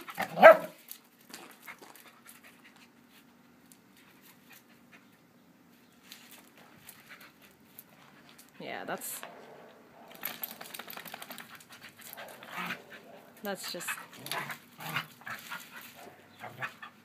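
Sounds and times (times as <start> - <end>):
paws clicking on gravel: 0.0 - 2.9, 10.1 - 16.9
dogs scuffling: 10.0 - 16.9.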